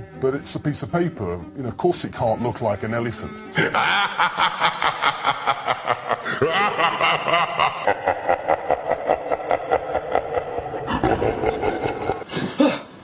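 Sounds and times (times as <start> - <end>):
rapid rhythmic laughing: 3.5 - 12.4.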